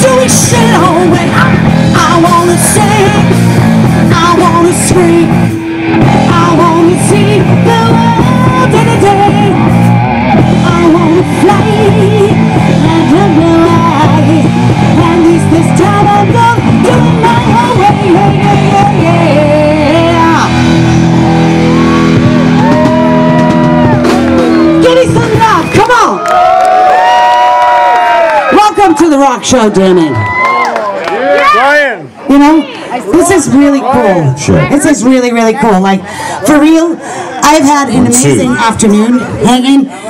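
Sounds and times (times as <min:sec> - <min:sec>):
woman singing: 0:00.0 - 0:09.8, 0:10.4 - 0:20.6
rock band playing: 0:00.0 - 0:30.8, 0:32.3 - 0:40.0.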